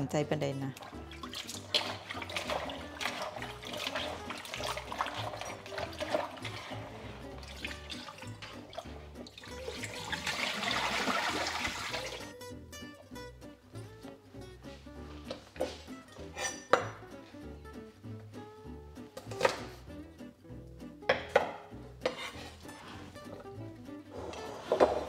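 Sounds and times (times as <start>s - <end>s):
soft background music: 0.0s - 25.0s
water splashing in a bowl: 0.7s - 12.3s
running tap water: 0.8s - 12.3s.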